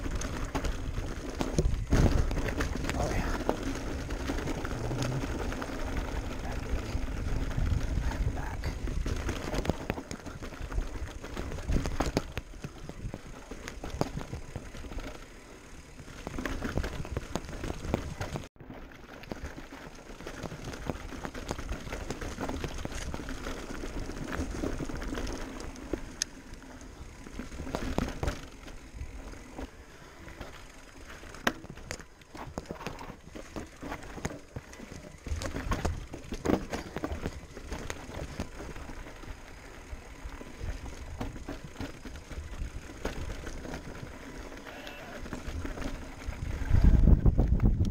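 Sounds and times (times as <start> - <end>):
bike clattering and knocking: 0.0 - 8.1, 8.8 - 15.3, 30.4 - 39.6
tyres rumbling on dirt and rock: 0.0 - 47.9.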